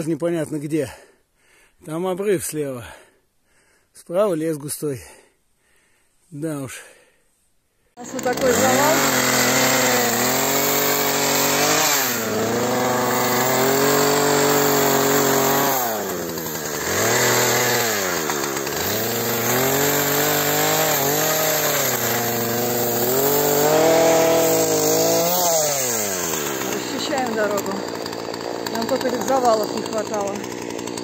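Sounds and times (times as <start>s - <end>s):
chainsaw cutting wood: 8.0s - 31.0s.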